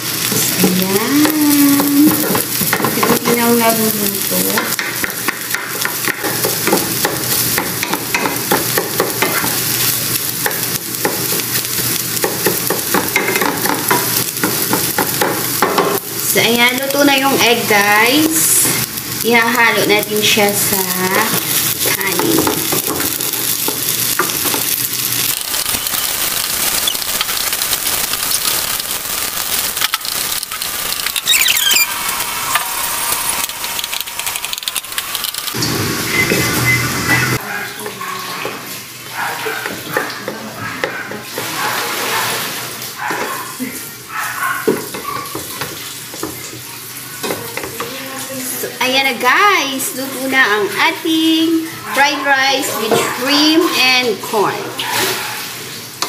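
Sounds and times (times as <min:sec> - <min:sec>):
egg sizzling in oil: 0:00.0 - 0:37.4.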